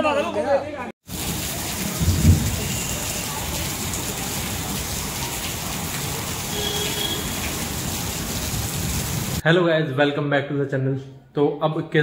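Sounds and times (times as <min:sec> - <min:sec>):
heavy rain: 0:01.0 - 0:09.4.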